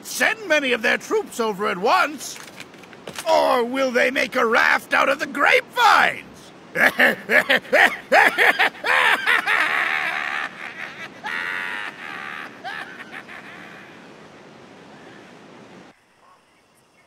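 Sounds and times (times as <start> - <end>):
man laughing heartily: 6.7 - 14.2.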